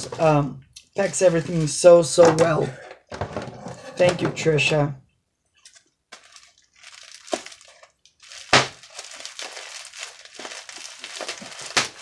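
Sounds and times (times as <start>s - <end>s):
plastic packaging crinkling: 5.6s - 12.0s.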